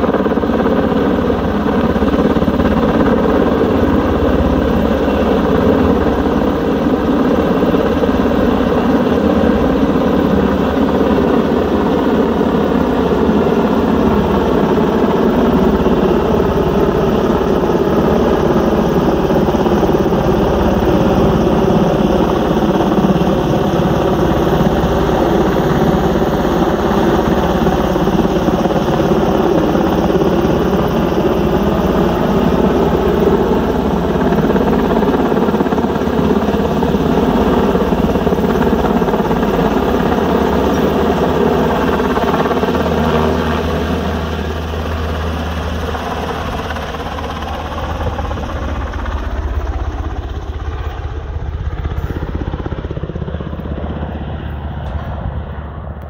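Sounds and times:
helicopter rotor and turbine drone: 0:00.0 - 0:56.0.

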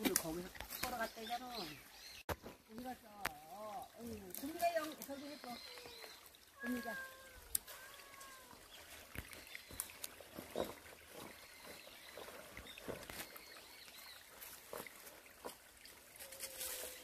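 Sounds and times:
footsteps crunching dry leaves: 0:07.8 - 0:17.0.

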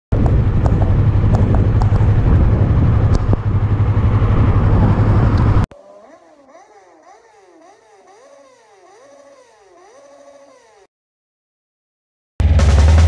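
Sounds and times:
wind buffeting microphone: 0:00.2 - 0:05.6.

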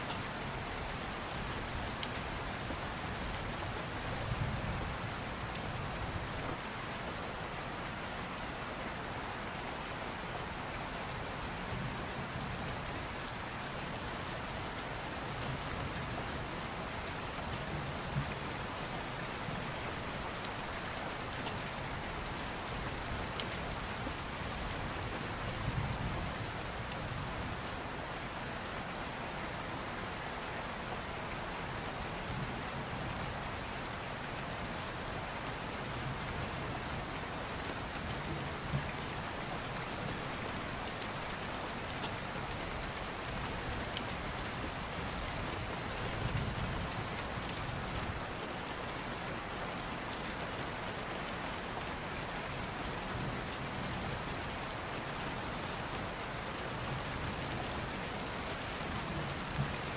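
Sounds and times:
steady rain patter: 0:00.0 - 0:59.9.

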